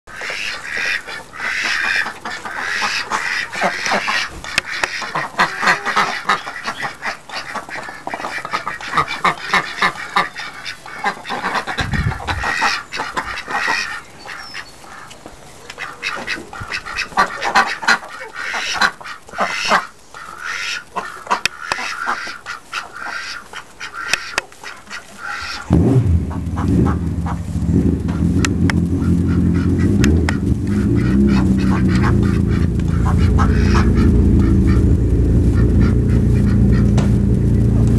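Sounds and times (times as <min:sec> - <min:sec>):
ducks quacking: 0:00.1 - 0:37.9
low thump: 0:36.9 - 0:37.3.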